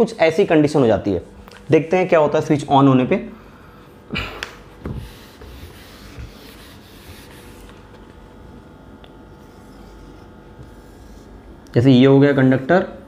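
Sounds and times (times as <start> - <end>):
whiteboard eraser scrubbing: 4.7 - 8.3, 9.3 - 11.6.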